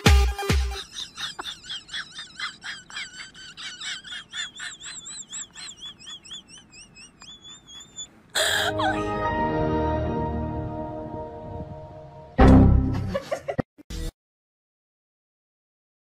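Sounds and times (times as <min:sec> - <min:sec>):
high-pitched bird-like chirps: 0:04.6 - 0:08.1.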